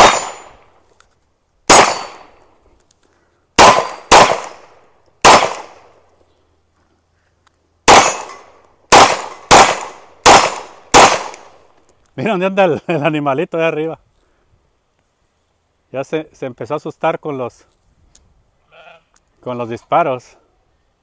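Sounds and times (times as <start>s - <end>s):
metallic ring from steel targets: 0.0s - 0.7s, 1.8s - 2.4s
pistol shots: 0.0s - 0.7s, 1.7s - 2.4s, 3.6s - 6.0s, 7.8s - 11.7s.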